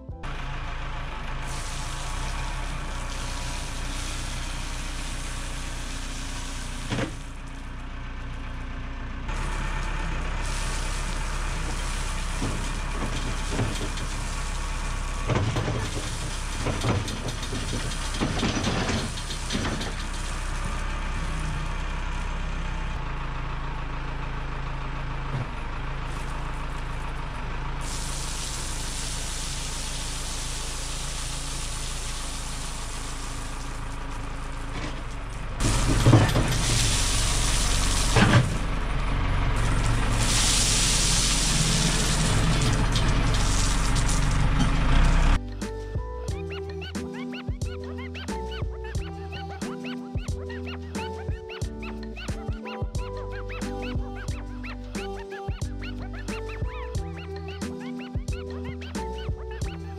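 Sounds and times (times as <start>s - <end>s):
heavy equipment engine running: 0.0s - 59.9s
knocks and clatter: 15.2s - 20.8s, 34.7s - 38.6s.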